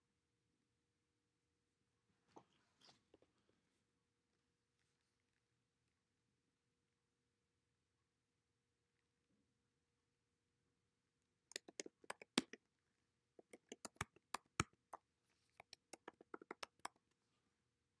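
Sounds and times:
computer keyboard typing: 11.5 - 12.6, 13.4 - 14.9, 15.6 - 16.9.

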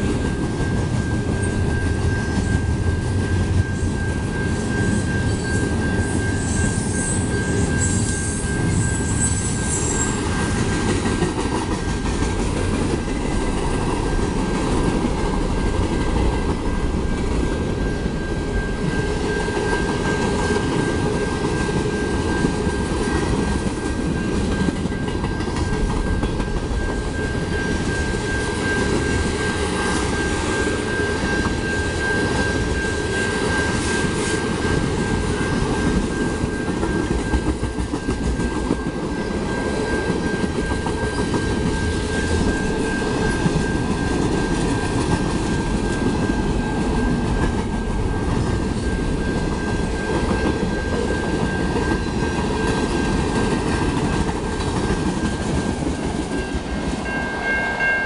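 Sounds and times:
steel wheels rumbling on rail: 0.0 - 58.0
thin high tone: 55.2 - 58.0.

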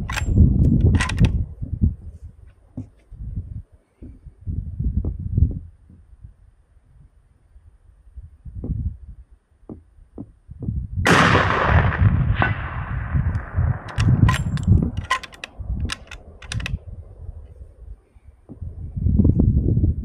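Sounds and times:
sharp clicks: 0.0 - 1.4, 13.2 - 16.8
rifle shot: 11.1 - 16.8.

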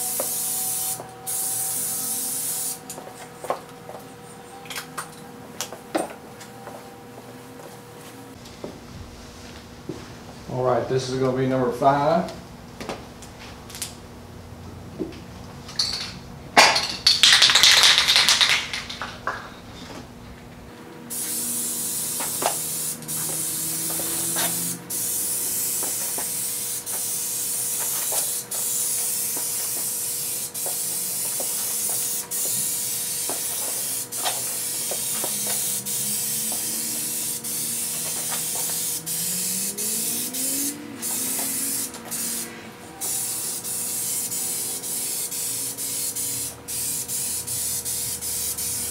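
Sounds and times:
spray paint hissing: 0.0 - 3.0, 21.1 - 48.9
spray can being shaken: 17.2 - 19.1, 21.2 - 35.9, 36.5 - 39.2.

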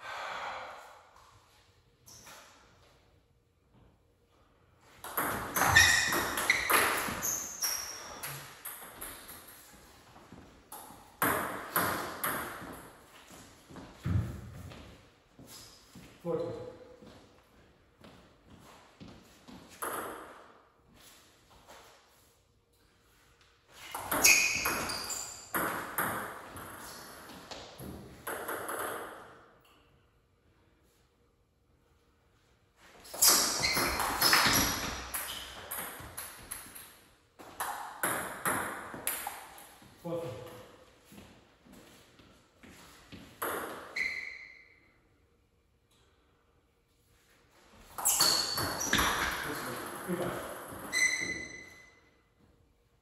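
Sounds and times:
table tennis ball pinging: 5.0 - 9.5, 23.9 - 27.0, 33.1 - 39.6, 48.0 - 51.9.

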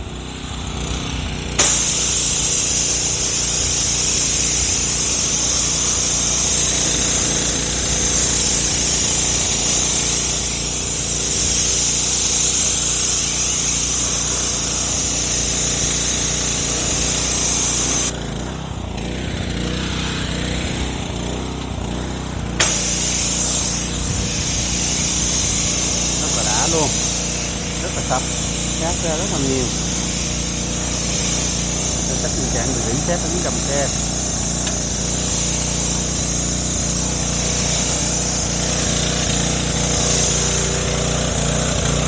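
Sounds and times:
pressure washer droning: 0.0 - 42.0
hiss of water spray: 1.5 - 18.1, 22.6 - 42.0
sharp click: 22.6 - 22.9.

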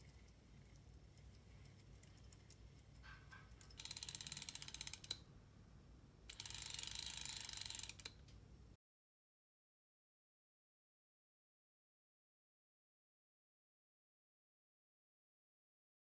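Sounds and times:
fishing reel ratchet clicking: 3.6 - 5.2, 6.3 - 8.2.

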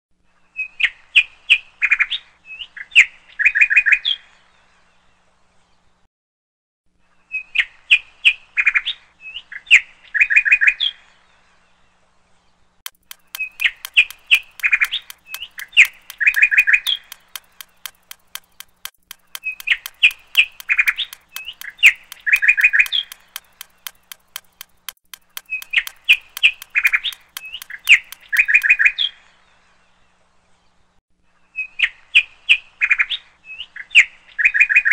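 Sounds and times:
fast steady ticking: 12.9 - 28.9.

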